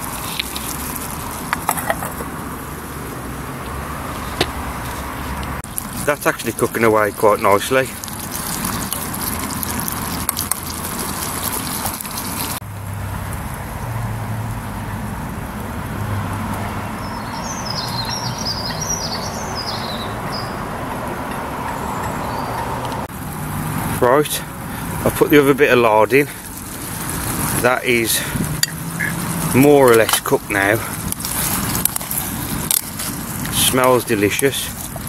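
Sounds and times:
road traffic hum: 0.0s - 35.0s
small bird chirping: 17.0s - 20.7s.

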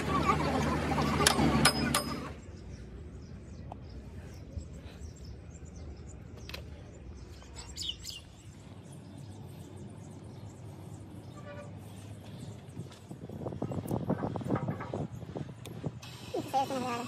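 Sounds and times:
bird chirps: 2.0s - 13.0s.

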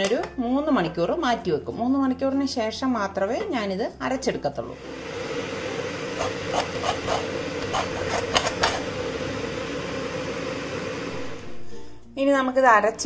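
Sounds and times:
coconut scraping: 6.1s - 9.0s.

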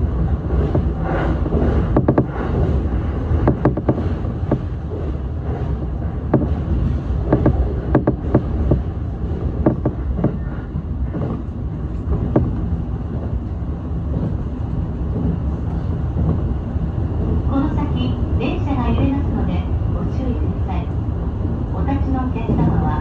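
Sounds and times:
electric train rumbling: 0.0s - 23.0s
sharp clicks and knocks: 0.2s - 5.1s, 5.7s - 16.6s.

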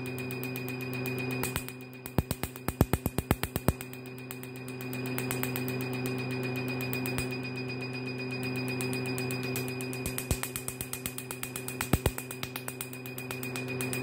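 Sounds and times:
laser machine hum: 0.0s - 14.0s
laser handpiece rapid clicks: 0.2s - 7.3s, 8.7s - 14.0s
faint fast ticking: 8.9s - 14.0s.

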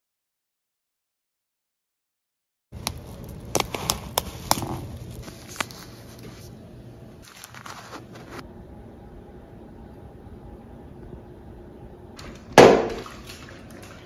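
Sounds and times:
paper packaging crinkling: 2.8s - 6.6s, 7.2s - 8.4s.

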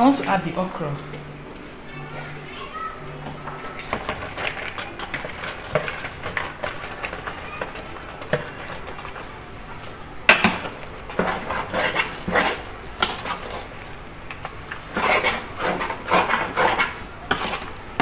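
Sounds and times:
metal spoon scraping a pot: 3.8s - 13.7s, 14.7s - 18.0s.

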